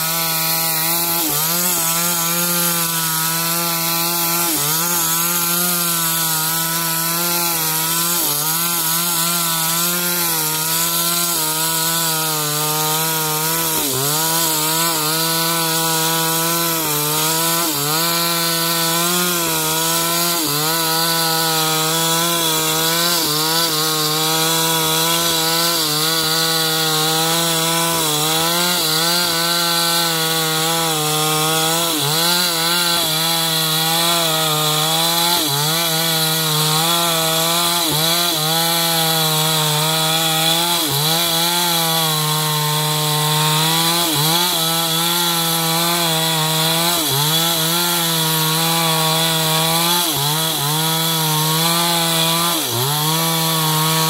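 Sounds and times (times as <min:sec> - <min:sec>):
chainsaw cutting timber: 0:00.0 - 0:54.0.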